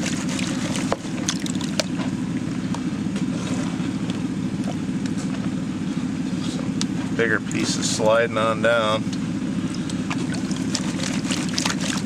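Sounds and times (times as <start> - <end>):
water sloshing and splashing: 0.0 - 5.6, 9.1 - 12.0
engine droning: 0.0 - 12.0.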